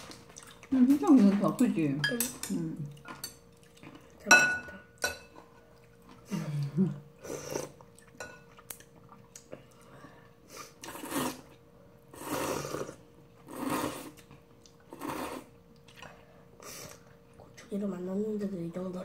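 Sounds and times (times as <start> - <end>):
noodles being slurped: 10.6 - 17.1.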